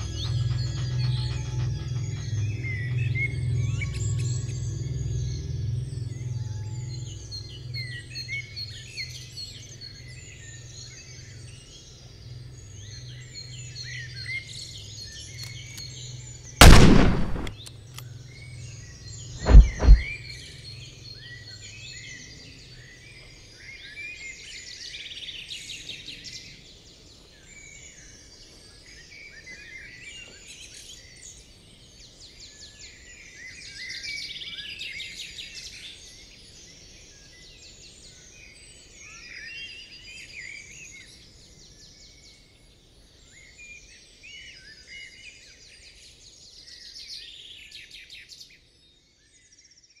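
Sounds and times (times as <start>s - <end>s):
songbirds chirping and trilling: 0.0s - 50.0s
low rumble echo of bang: 16.6s - 17.6s, 19.4s - 20.2s.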